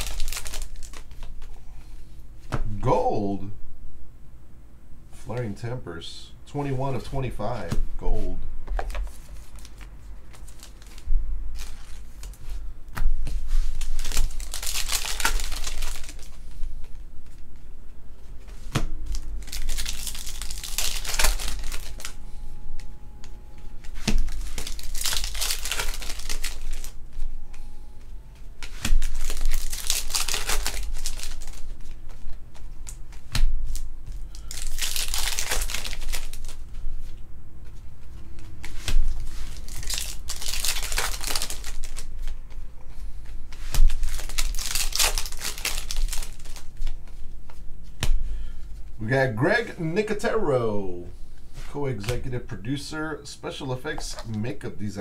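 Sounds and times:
wrappers crinkling and tearing: 0:00.0 - 0:01.5, 0:09.1 - 0:12.6, 0:13.3 - 0:17.4, 0:19.0 - 0:22.2, 0:23.9 - 0:27.0, 0:28.6 - 0:36.6, 0:38.6 - 0:42.4, 0:43.6 - 0:47.0.

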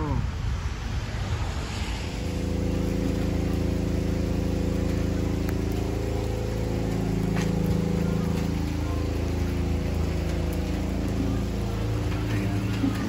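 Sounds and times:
steady low drone: 0:00.0 - 0:13.0
faint ticks: 0:04.6 - 0:13.0.

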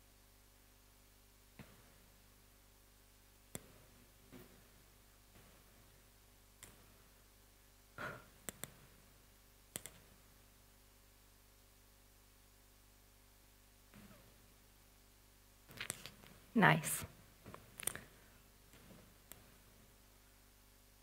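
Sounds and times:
short clicks and taps: 0:09.7 - 0:10.0.

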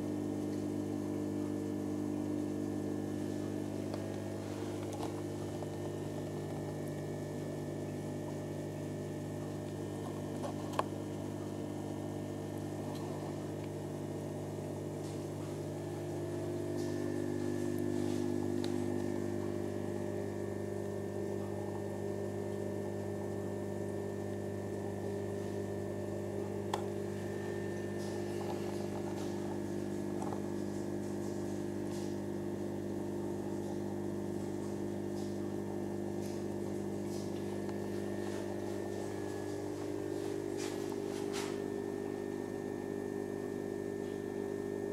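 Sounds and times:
aquarium equipment humming: 0:00.0 - 0:44.9.

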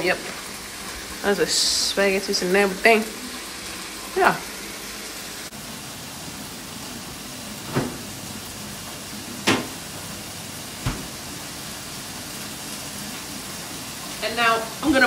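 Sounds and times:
food frying in a pan: 0:00.0 - 0:15.0
kitchen knocks: 0:09.4 - 0:09.8, 0:10.8 - 0:11.2.

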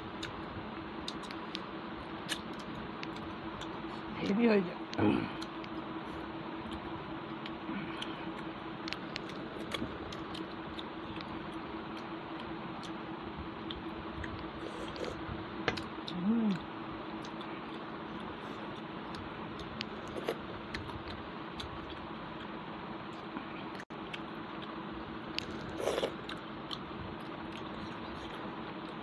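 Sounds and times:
background hum: 0:00.0 - 0:29.0
quiet chewing: 0:01.0 - 0:13.0, 0:13.6 - 0:29.0
person humming: 0:05.0 - 0:05.5, 0:16.1 - 0:16.7.

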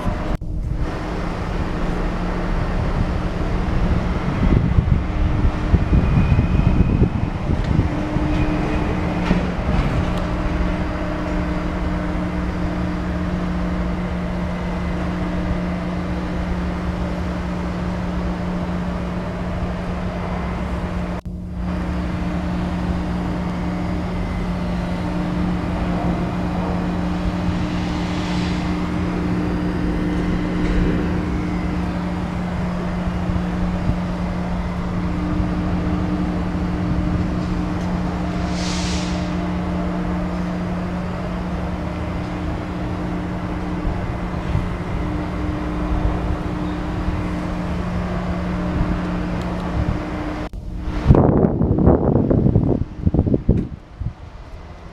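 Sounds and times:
diesel generator engine humming: 0:00.0 - 0:54.9.

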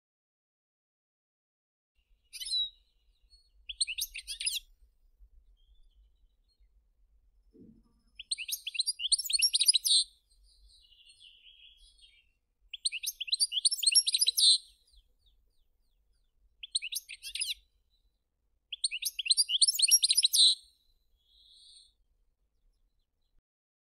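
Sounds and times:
goldfinch twittering song: 0:02.3 - 0:04.7, 0:08.0 - 0:17.7, 0:18.7 - 0:21.8.

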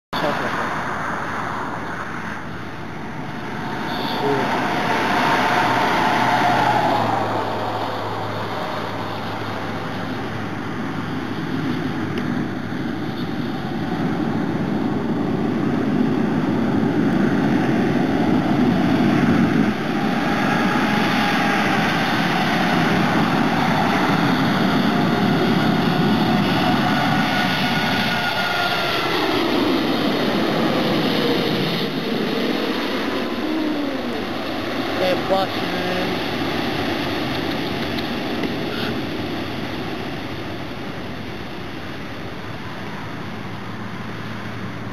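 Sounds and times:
jet roar: 0:00.1 - 0:44.9
jet engine whine: 0:00.2 - 0:44.9.

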